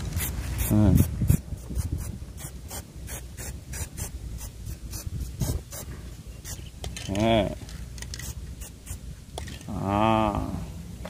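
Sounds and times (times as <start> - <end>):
spray paint can hissing: 0.0 - 7.0, 8.0 - 9.1.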